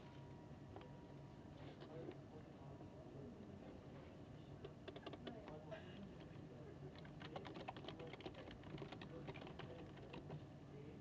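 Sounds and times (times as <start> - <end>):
air-conditioning hum: 0.0 - 11.0
typing on computer keyboard: 4.8 - 5.4, 6.9 - 10.4.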